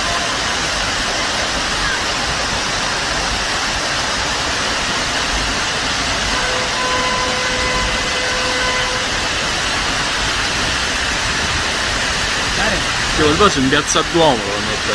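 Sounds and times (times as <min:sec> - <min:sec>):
floodwater rushing: 0:00.0 - 0:14.9
steady pitched horn tone: 0:06.2 - 0:09.8.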